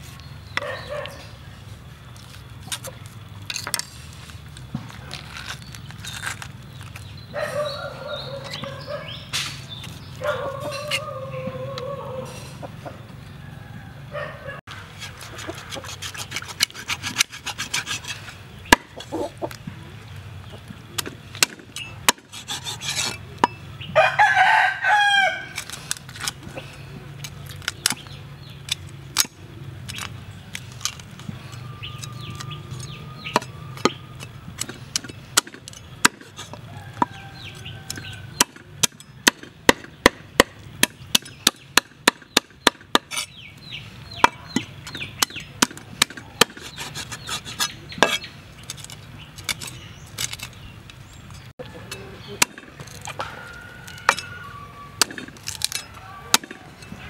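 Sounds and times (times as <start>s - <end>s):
chickens calling faintly: 7.3s - 16.4s, 51.5s - 57.0s
rooster crowing: 7.4s - 9.1s, 10.2s - 14.6s, 23.9s - 25.6s, 36.6s - 38.4s, 53.2s - 55.0s, 55.7s - 57.0s
cleaver chopping on wooden board: 21.0s - 22.8s, 37.9s - 43.2s, 44.1s - 48.2s.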